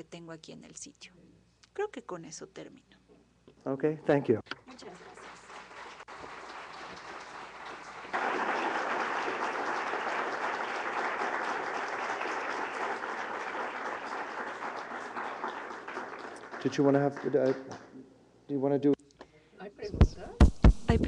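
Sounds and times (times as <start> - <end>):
audience applauding: 4.6 - 17.9.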